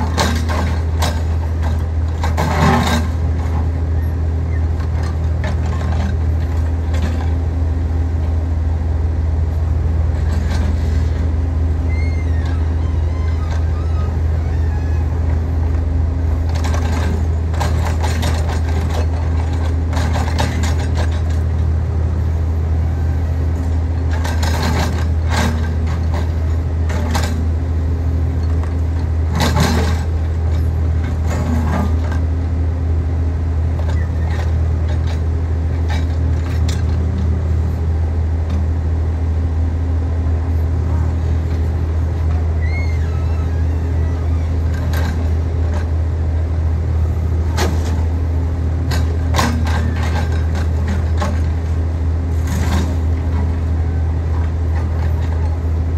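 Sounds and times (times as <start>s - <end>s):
scraping and clanking: 0.0s - 3.7s, 23.6s - 27.4s, 29.3s - 32.3s, 48.8s - 53.6s
diesel engine droning: 0.0s - 55.9s.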